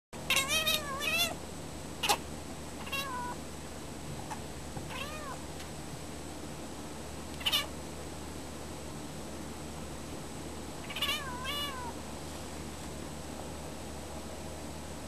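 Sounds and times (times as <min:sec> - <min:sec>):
cat meowing: 0:00.3 - 0:01.4, 0:02.8 - 0:03.4, 0:04.9 - 0:05.4, 0:07.4 - 0:07.7, 0:10.8 - 0:12.0.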